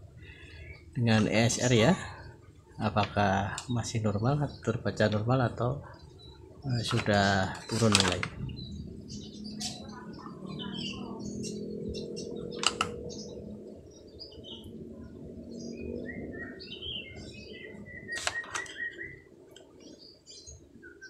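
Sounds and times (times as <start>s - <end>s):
low hum: 0.0s - 20.8s
small birds chirping: 0.0s - 21.0s
sharp clicks of test clips: 7.7s - 8.4s, 12.6s - 13.0s, 18.1s - 18.8s.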